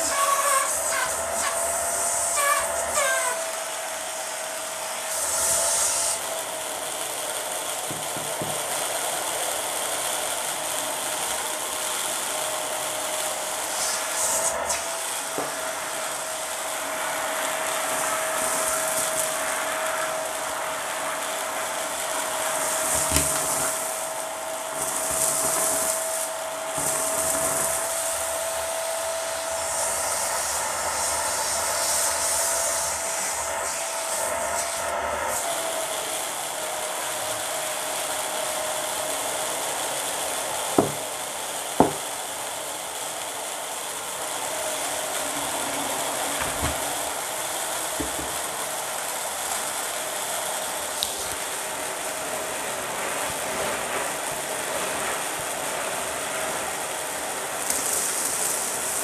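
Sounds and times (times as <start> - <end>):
debris rattling through hose: 0.0 - 3.5, 21.8 - 29.0
vacuum cleaner motor whine: 0.0 - 59.0.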